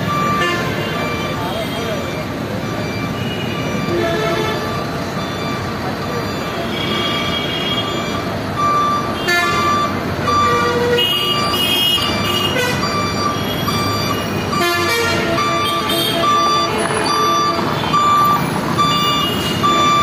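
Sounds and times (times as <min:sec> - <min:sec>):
truck reversing alarm beeps: 0:00.0 - 0:20.0
truck engine running: 0:15.2 - 0:20.0.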